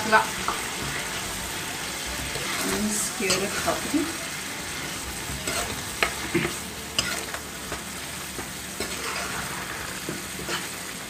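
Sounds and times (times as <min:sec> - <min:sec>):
gravy sizzling: 0:00.0 - 0:11.0
spatula scraping and tapping a pan: 0:05.2 - 0:10.8.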